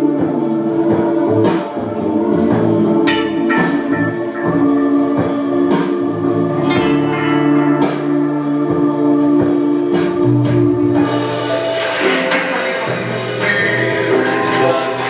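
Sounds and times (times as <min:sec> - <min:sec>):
cello holding low notes: 0:02.2 - 0:11.2
electric guitar playing: 0:02.9 - 0:15.0
sharp percussive hits: 0:03.0 - 0:15.0.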